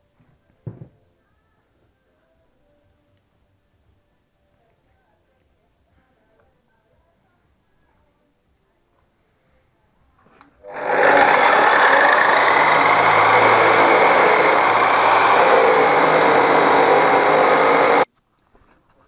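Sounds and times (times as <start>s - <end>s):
chop saw cutting steel: 10.6s - 18.1s.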